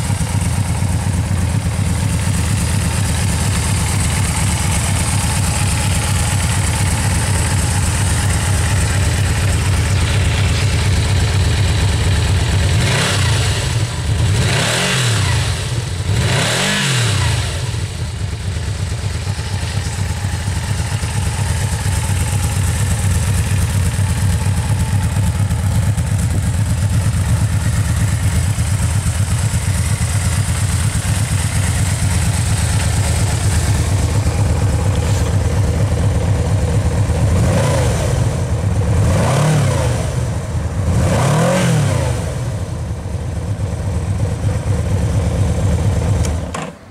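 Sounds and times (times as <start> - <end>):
motorcycle engine idling and revving: 0.0 - 46.9.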